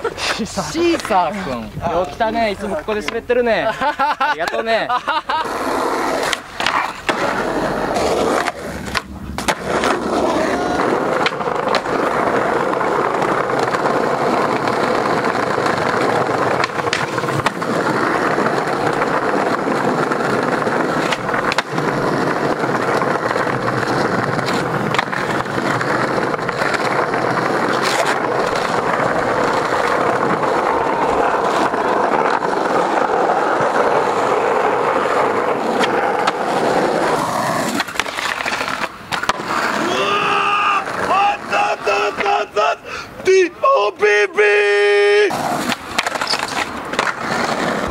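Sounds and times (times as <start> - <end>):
skateboard wheels rolling on concrete: 0.0 - 47.9
skateboard clacks: 5.4 - 42.6, 45.1 - 47.9.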